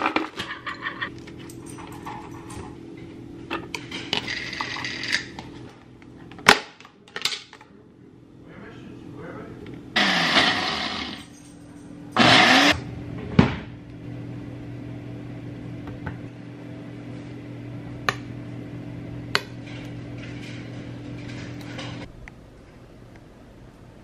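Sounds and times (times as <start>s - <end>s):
steady low hum: 7.6s - 24.0s
blender running: 10.0s - 11.3s, 12.2s - 12.8s.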